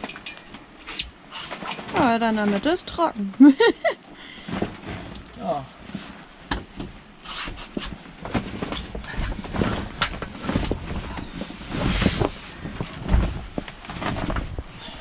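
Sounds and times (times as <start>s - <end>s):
plastic tarp rustling: 0.8s - 3.0s, 7.4s - 15.0s.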